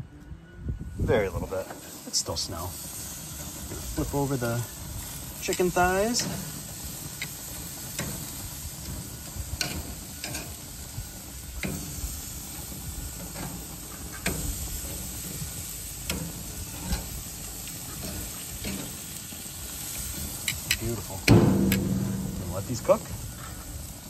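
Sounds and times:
chicken sizzling on a grill: 0:00.9 - 0:24.0
metal tongs clicking on grates: 0:05.4 - 0:06.4, 0:09.6 - 0:10.5, 0:20.4 - 0:22.9.

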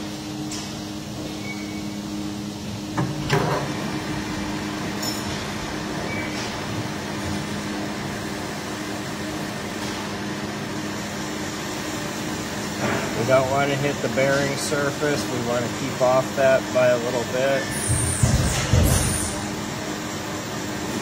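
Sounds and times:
metal lathe running: 0:01.0 - 0:18.2
lathe clunk and clatter: 0:02.9 - 0:03.8.

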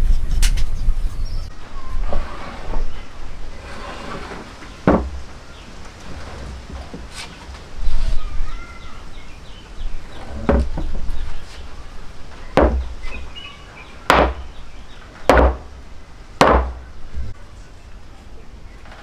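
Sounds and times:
wooden mallet knocking on workbench: 0:04.9 - 0:05.1, 0:12.6 - 0:12.9, 0:16.4 - 0:16.8.

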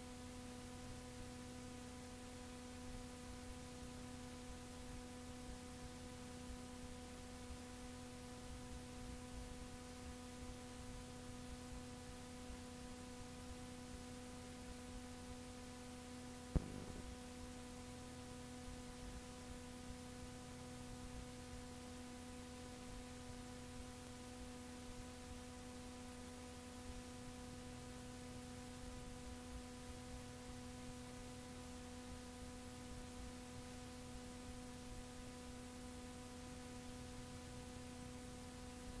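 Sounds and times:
electrical hum: 0:00.0 - 0:39.0
tape hiss: 0:00.0 - 0:39.0
sharp click: 0:16.6 - 0:17.2.

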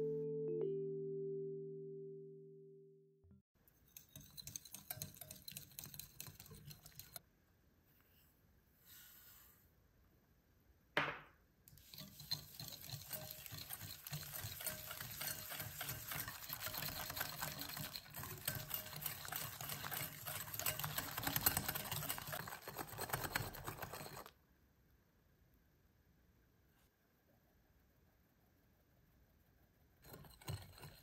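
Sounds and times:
whisk ticking in a bowl: 0:03.8 - 0:07.2, 0:11.7 - 0:24.3.

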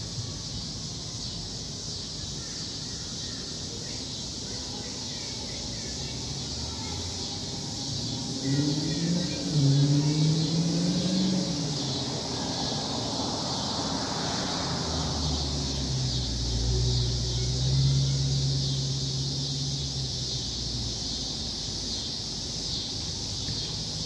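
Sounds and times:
car engine droning: 0:06.2 - 0:24.0.

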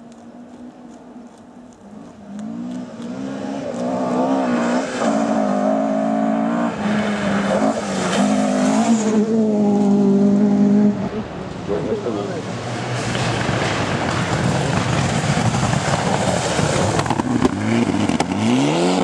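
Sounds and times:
rally car engine passing: 0:01.9 - 0:19.0.

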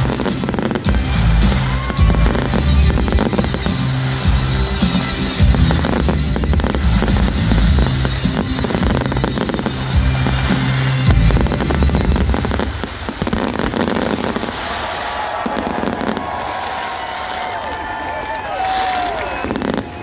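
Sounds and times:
show music with bass: 0:00.0 - 0:12.7
fireworks crackling and popping: 0:00.0 - 0:20.0.

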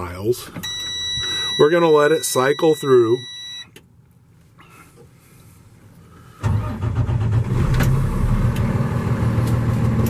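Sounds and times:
diesel truck engine starting and idling: 0:06.3 - 0:10.0.

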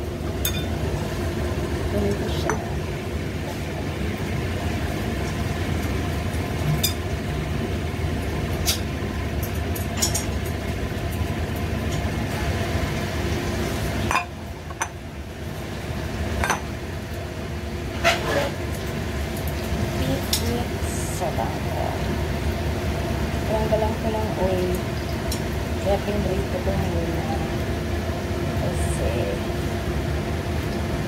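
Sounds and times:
steady mechanical drone: 0:00.0 - 0:31.0
chopsticks clinking on frying pan: 0:00.4 - 0:00.7.

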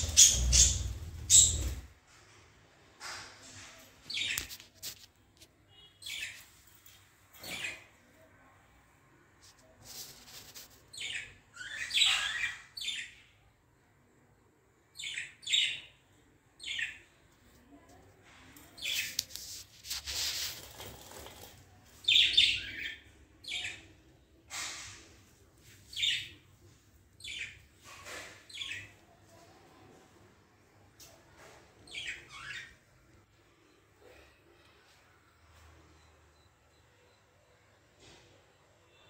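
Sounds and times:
budgerigars chirping: 0:00.0 - 0:01.8.

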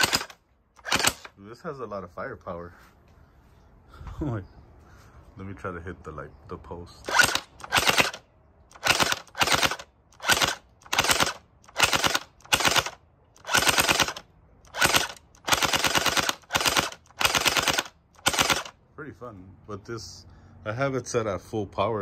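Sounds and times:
gel blaster firing bursts: 0:00.0 - 0:01.3, 0:07.1 - 0:18.7.

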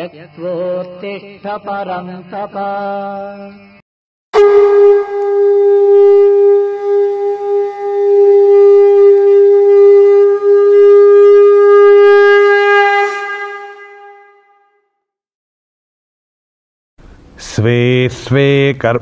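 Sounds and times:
conch shell blown: 0:04.4 - 0:15.0.

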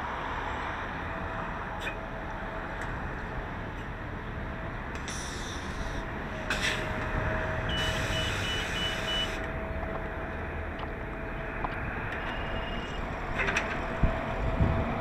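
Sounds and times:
bus engine idling: 0:00.8 - 0:15.0
high warning beeps: 0:07.7 - 0:09.4.

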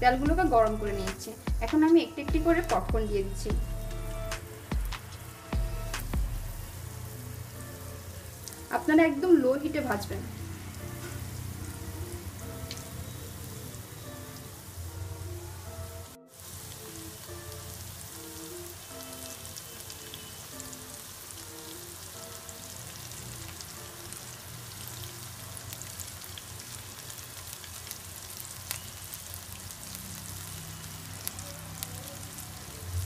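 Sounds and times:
chicken deep-frying in oil: 0:08.1 - 0:15.6, 0:16.3 - 0:33.0.

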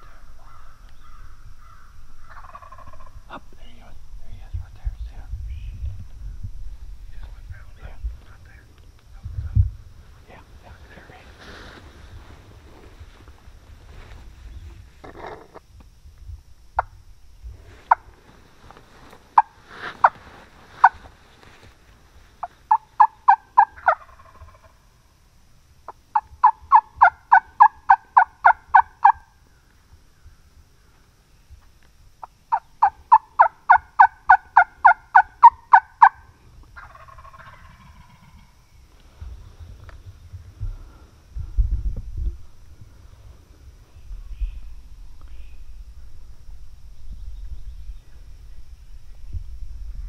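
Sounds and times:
turkey call yelps: 0:00.0 - 0:03.1, 0:22.7 - 0:24.6, 0:26.1 - 0:29.2, 0:32.5 - 0:38.4.

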